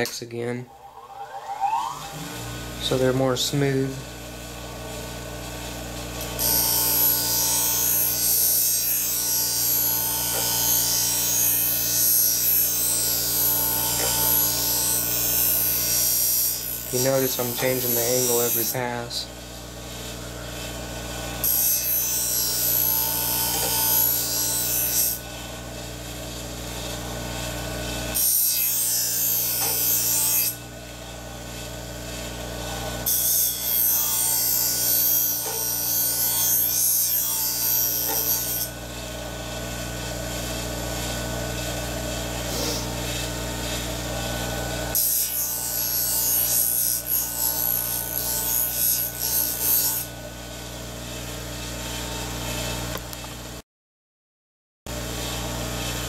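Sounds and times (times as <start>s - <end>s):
sharpening machine motor hum: 2.0s - 53.1s
shears rasping on polishing wheel: 5.4s - 19.2s, 19.8s - 50.2s.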